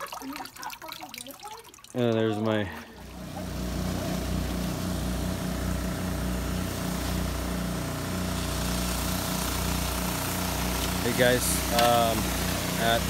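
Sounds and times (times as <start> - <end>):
small gasoline engine running: 3.1 - 13.0.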